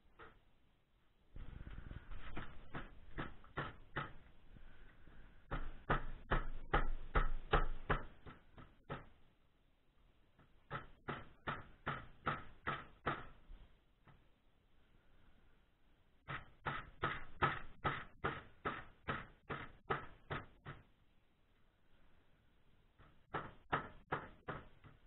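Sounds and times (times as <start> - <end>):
hammer knocking on steel: 5.5 - 9.2.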